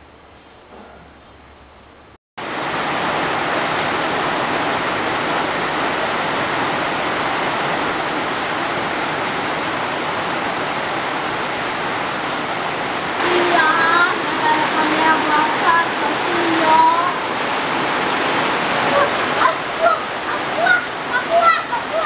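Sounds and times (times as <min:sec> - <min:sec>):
heavy rain: 0:02.4 - 0:22.0.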